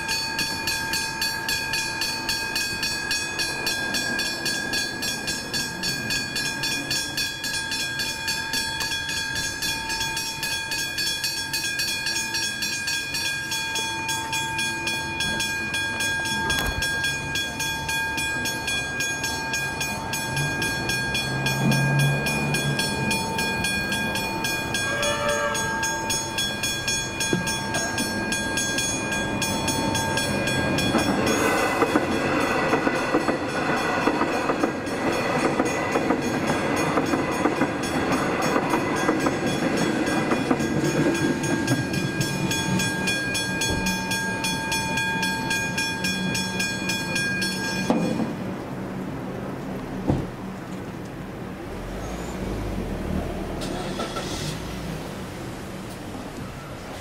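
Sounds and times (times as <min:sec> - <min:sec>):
level crossing warning bells: 0:00.0 - 0:49.6
rumble of approaching train: 0:00.0 - 0:57.0.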